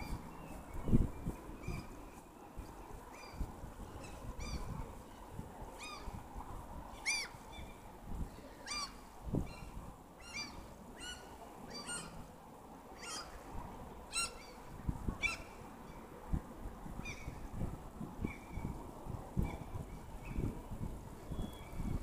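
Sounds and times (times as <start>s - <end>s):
birds calling: 8.6s - 12.3s, 13.0s - 13.4s.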